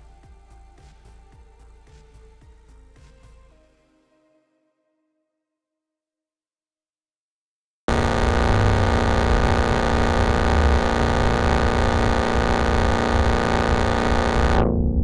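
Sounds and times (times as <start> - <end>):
distorted synthesizer chord: 7.9 - 15.0.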